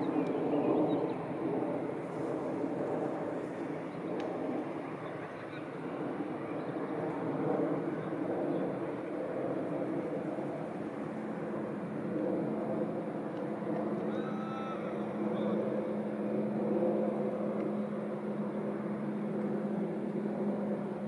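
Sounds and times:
low engine drone: 0.0 - 21.0.

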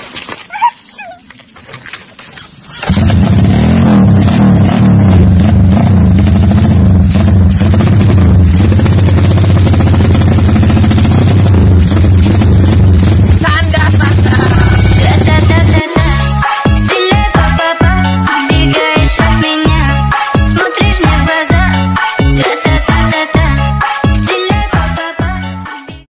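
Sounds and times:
motorcycle kick start: 2.7 - 5.2
motorcycle engine running: 2.8 - 16.3.

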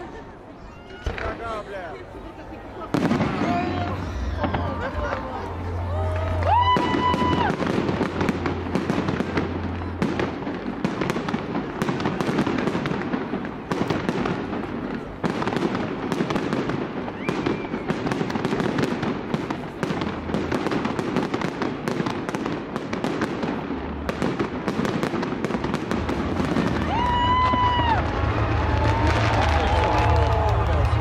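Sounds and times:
fireworks crackling: 0.0 - 31.0
fireworks bursting with bangs: 0.9 - 2.0, 2.7 - 31.0.

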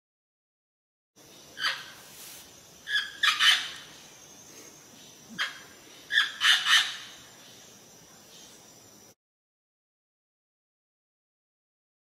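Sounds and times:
parrot squawking: 2.9 - 3.8, 5.4 - 7.0.

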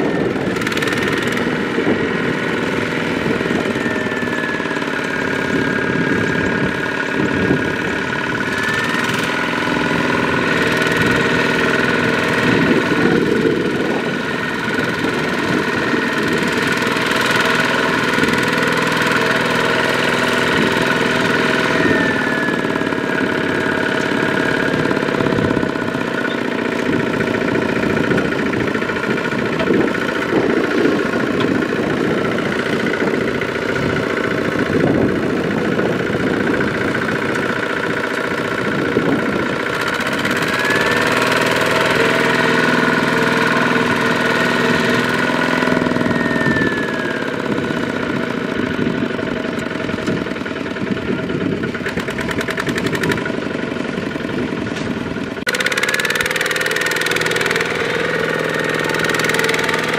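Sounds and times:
diesel engine knocking under load: 0.0 - 59.9.

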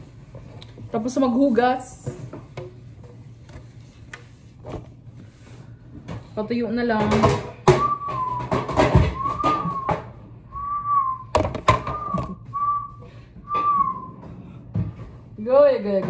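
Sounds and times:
person whistling: 7.7 - 14.2.

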